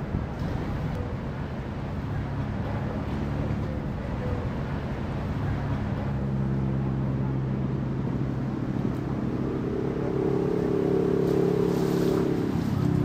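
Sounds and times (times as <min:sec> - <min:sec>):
engine running: 0:00.0 - 0:13.0
higher engine note: 0:05.5 - 0:13.0.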